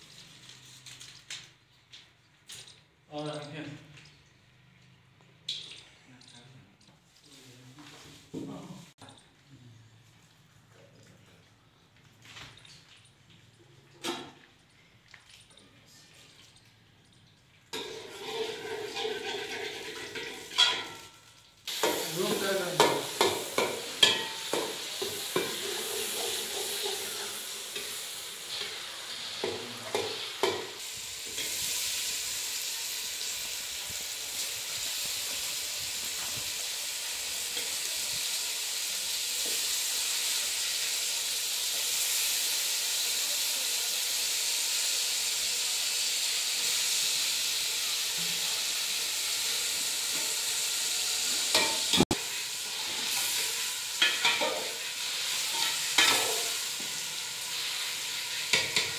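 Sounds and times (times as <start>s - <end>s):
fish sizzling in oil: 17.6s - 58.9s
metal spoon stirring: 17.8s - 21.0s
utensils clattering against pot: 17.8s - 21.1s, 21.7s - 31.6s, 52.9s - 56.6s, 58.4s - 58.9s.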